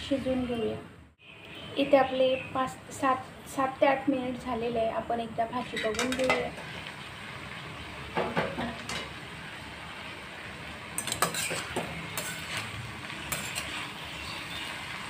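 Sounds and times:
metal spatula scraping pan: 5.6s - 6.5s, 11.0s - 14.4s.

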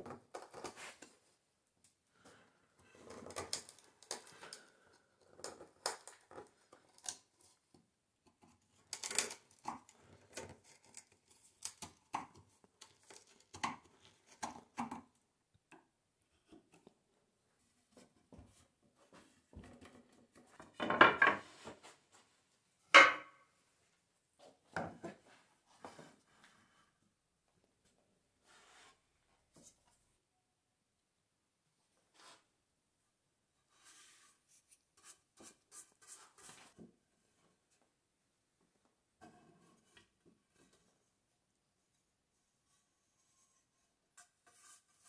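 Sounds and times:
wood knocking on workbench: 23.0s - 23.3s.

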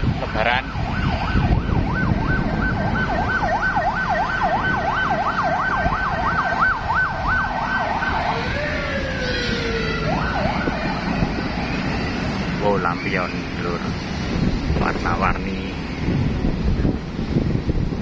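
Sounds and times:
moving vehicle road noise: 0.0s - 18.0s
electronic siren yelp and wail: 0.5s - 13.6s.

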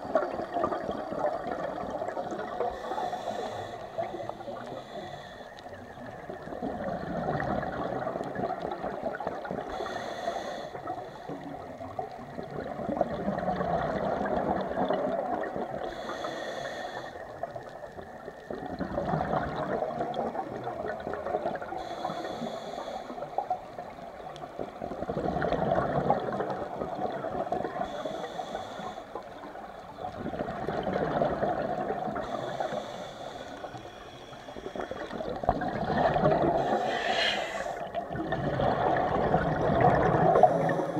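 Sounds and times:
exhaled bubbles rushing: 0.0s - 2.9s, 6.0s - 9.7s, 11.7s - 15.9s, 18.5s - 21.7s, 24.5s - 27.9s, 29.9s - 32.4s, 34.7s - 40.9s
regulator inhale hiss: 2.6s - 5.8s, 9.4s - 11.6s, 15.7s - 18.4s, 21.6s - 24.0s, 27.6s - 29.9s, 32.1s - 35.5s, 36.5s - 38.0s, 40.4s - 40.9s.

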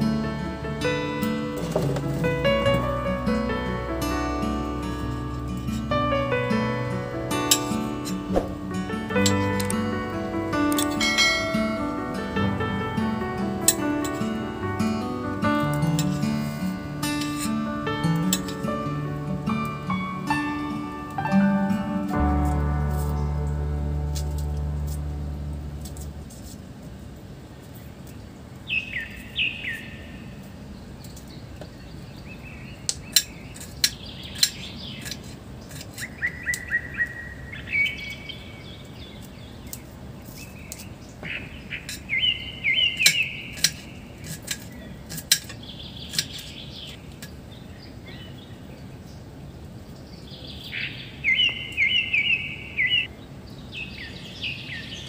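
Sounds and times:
birds chirping: 28.0s - 55.0s.

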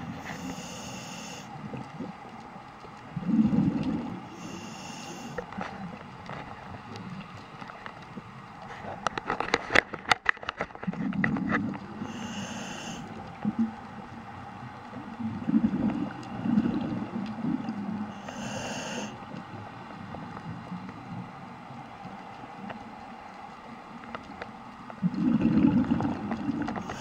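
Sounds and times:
hissing regulator inhales: 0.1s - 1.5s, 4.3s - 5.5s, 12.0s - 13.2s, 18.2s - 19.2s, 26.8s - 27.0s
exhaled bubbles burbling: 3.0s - 4.5s, 10.8s - 14.3s, 15.0s - 18.6s, 24.9s - 27.0s.

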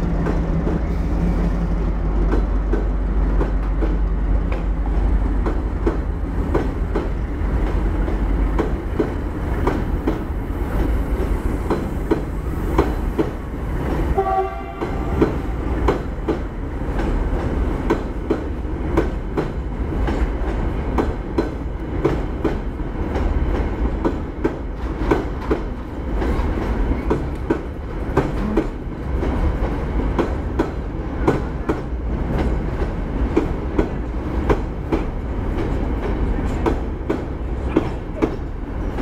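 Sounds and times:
low train rumble: 0.0s - 39.0s
train wheels clacking over rail joints: 0.0s - 39.0s.

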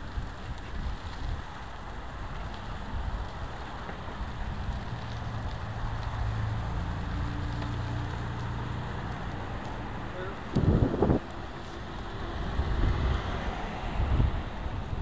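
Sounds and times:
wind noise on microphone: 0.0s - 6.5s, 10.4s - 15.0s
tyres rolling on gravel: 0.0s - 15.0s.

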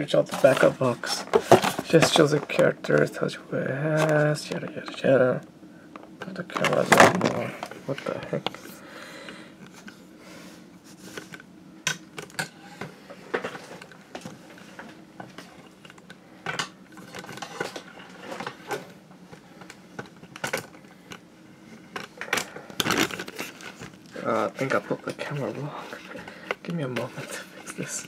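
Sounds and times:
faint low hum: 0.0s - 28.0s.

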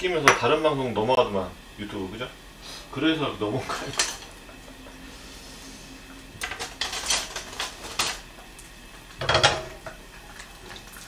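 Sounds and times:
utensils clinking on frying pan: 3.7s - 4.4s, 6.4s - 8.2s, 9.2s - 9.9s
pan clunk: 9.2s - 9.9s.

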